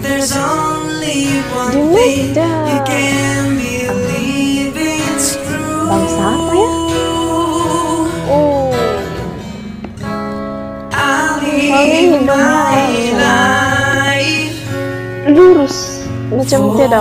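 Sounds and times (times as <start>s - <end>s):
person singing: 0.0s - 9.4s, 10.9s - 14.7s
acoustic guitar: 0.0s - 17.0s.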